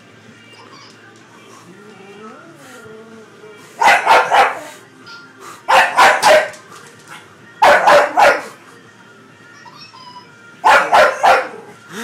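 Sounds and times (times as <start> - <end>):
dog barking: 3.8 - 4.7, 5.7 - 6.6, 7.6 - 8.6, 10.6 - 11.7.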